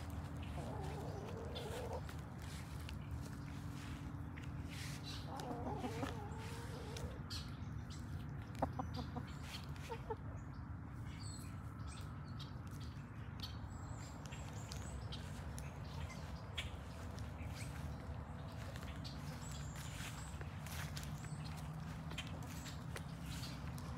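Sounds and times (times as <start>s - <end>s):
hens clucking: 0.0s - 10.6s, 14.1s - 23.9s
hen calling: 0.4s - 2.6s.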